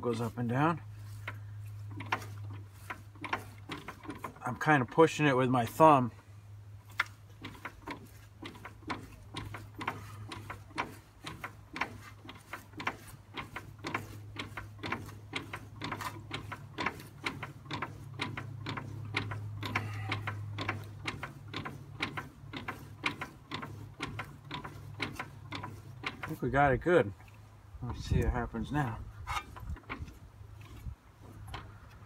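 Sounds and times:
steady low hum: 0:00.0 - 0:32.0
engine valve clicking: 0:06.9 - 0:26.4.

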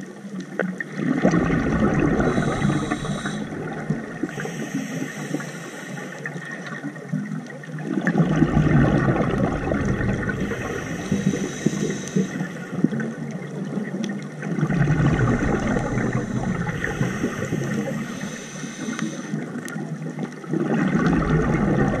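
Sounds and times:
exhaled bubbles gurgling underwater: 0:00.0 - 0:22.0
diver inhaling through regulator: 0:01.8 - 0:06.6, 0:08.7 - 0:12.9, 0:14.9 - 0:19.6.

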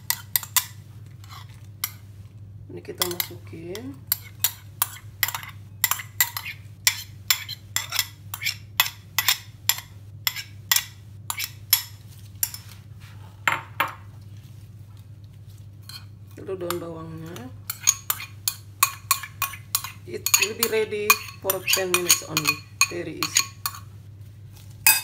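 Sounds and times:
spoon clinking on glass bowl: 0:17.7 - 0:23.8.

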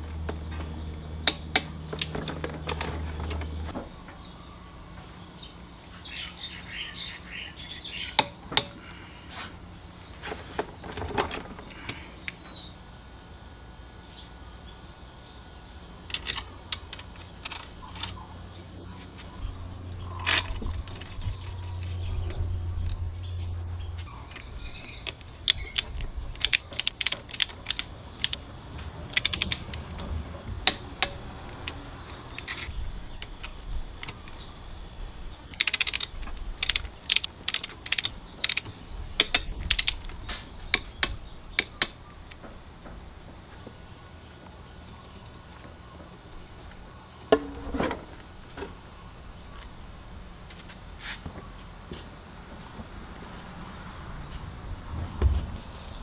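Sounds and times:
low hum: 0:00.0 - 0:51.4
metal tools clinking: 0:16.1 - 0:18.2.

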